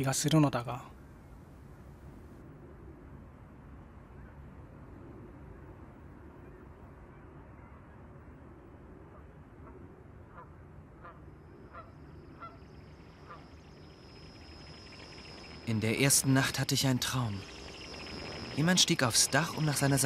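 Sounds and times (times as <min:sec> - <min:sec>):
low ambient hum: 0:00.0 - 0:20.0
faint honking bird calls: 0:09.2 - 0:13.6
thin high whine: 0:12.5 - 0:20.0.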